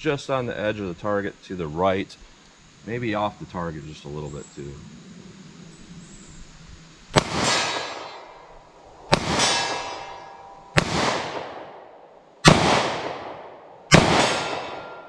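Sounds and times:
revolver shots echoing: 7.2s - 8.4s, 9.1s - 11.8s, 12.4s - 15.0s.

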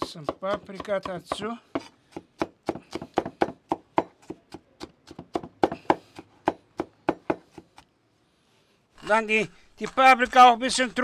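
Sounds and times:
knife chopping pepper: 0.0s - 7.8s.

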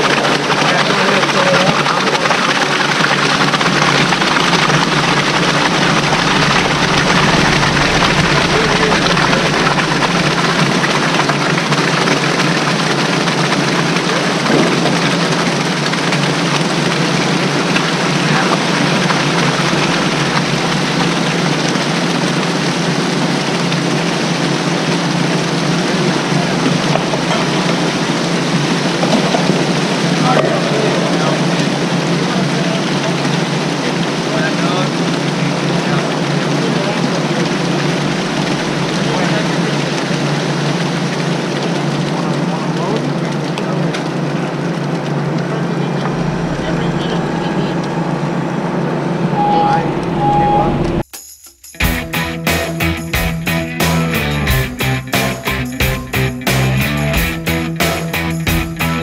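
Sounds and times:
drone propellers whirring: 2.0s - 32.3s, 35.0s - 41.7s, 44.2s - 51.0s.

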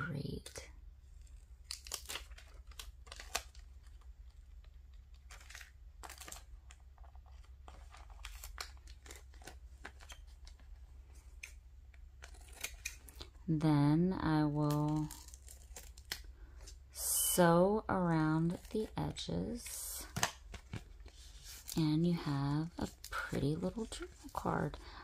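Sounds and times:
stickers peeling and rustling: 1.0s - 13.3s, 14.5s - 16.8s.

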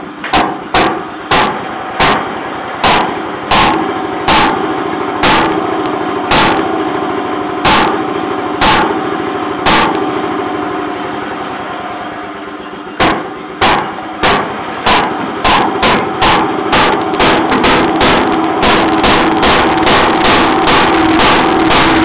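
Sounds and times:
flywheel engine firing bangs: 0.0s - 22.0s
steady mechanical hum: 0.0s - 22.0s.

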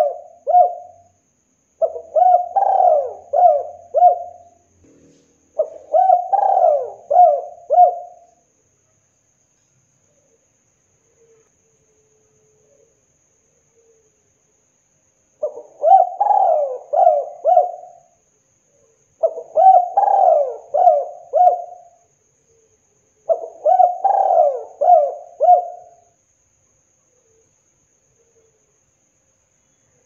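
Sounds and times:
dove cooing: 0.0s - 1.1s, 1.8s - 8.3s, 15.4s - 18.2s, 19.2s - 22.0s, 23.3s - 26.1s.

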